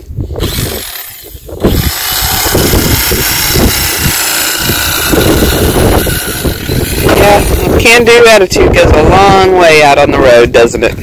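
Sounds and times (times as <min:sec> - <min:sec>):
electric knife cutting foam: 0:00.4 - 0:07.8.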